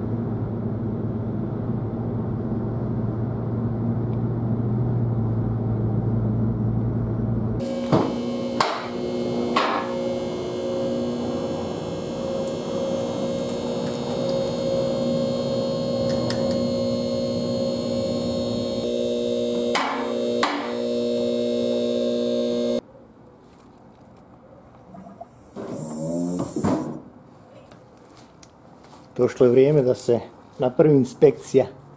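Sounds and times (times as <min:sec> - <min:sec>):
hydraulic pump motor humming: 0:07.6 - 0:22.8.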